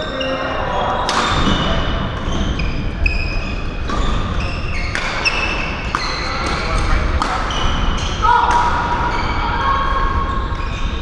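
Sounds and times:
shoes squeaking on court: 0.0 - 11.0
racquets hitting shuttlecocks: 4.8 - 7.6.

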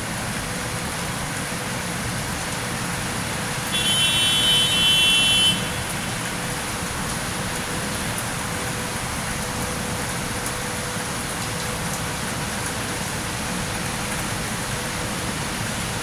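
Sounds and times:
steady rain falling: 0.0 - 16.0
car traffic: 3.2 - 8.2.

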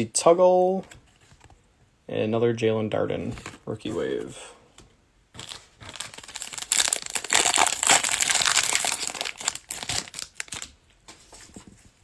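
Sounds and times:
foil wrapper tearing and crinkling: 5.4 - 10.7.

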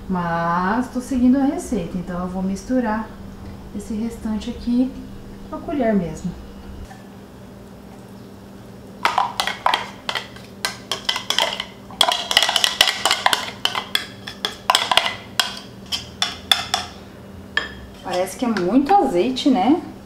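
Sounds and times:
spoon scraping and tapping a bowl: 9.0 - 17.0, 17.6 - 18.7.

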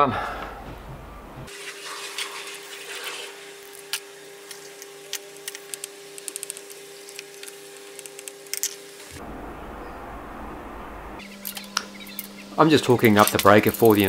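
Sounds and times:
screwdriver clicking on screws: 3.9 - 8.8
steady low hum: 4.2 - 14.0.

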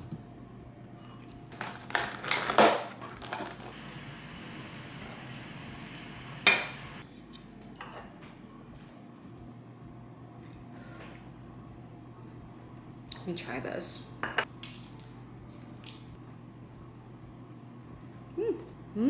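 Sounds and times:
dishes knocking and clinking: 6.4 - 7.0.

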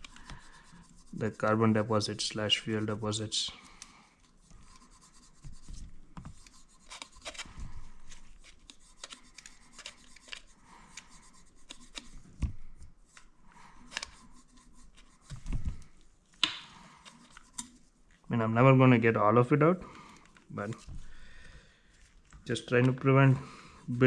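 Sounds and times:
swabs rubbing and scratching: 0.0 - 18.3.

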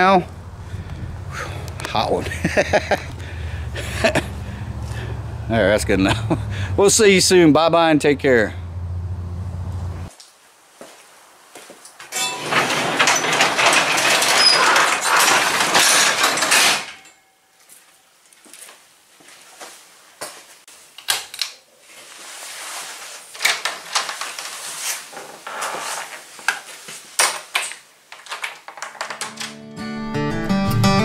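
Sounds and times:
roll-up garage door rattling: 12.1 - 17.2
handling clicks and knocks: 27.2 - 29.6.

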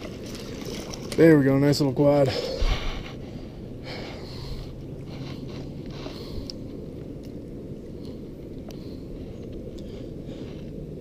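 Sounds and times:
steady low rumble: 0.0 - 11.0
hands rustling with fish and line: 4.4 - 11.0.

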